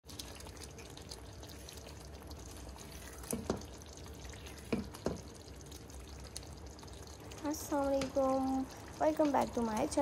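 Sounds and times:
spatula knocking on pan: 4.7 - 5.3.

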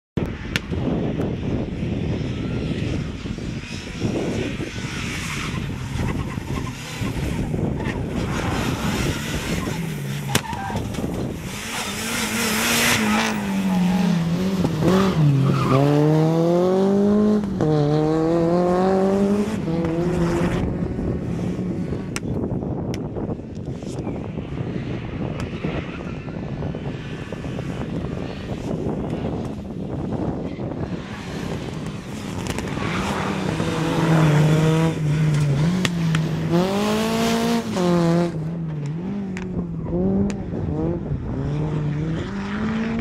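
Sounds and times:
wind buffeting microphone: 0.2 - 43.0
car engine revving hard: 11.4 - 22.0, 31.3 - 43.0.

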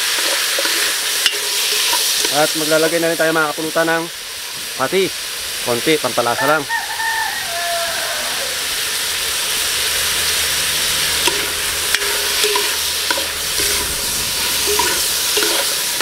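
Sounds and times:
food sizzling in hot oil: 0.0 - 16.0
metal spoon scraping pot: 0.1 - 2.4, 10.6 - 16.0.

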